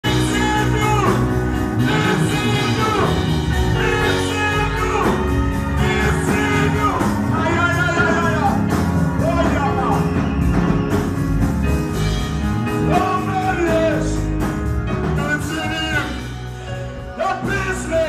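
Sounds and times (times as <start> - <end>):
person singing: 0.0 - 10.2, 15.0 - 18.0
instrumental backing with bass: 0.0 - 18.0.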